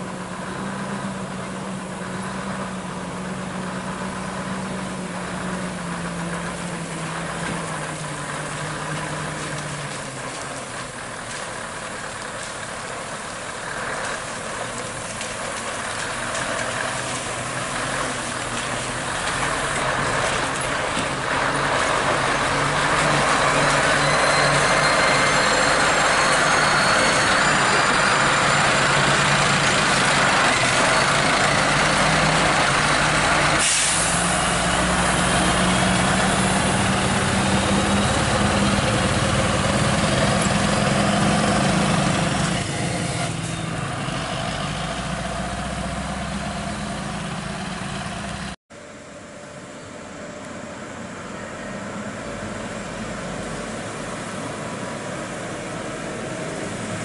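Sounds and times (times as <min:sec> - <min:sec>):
truck diesel engine running: 0:00.0 - 0:57.0
air brake hiss: 0:33.6 - 0:34.4.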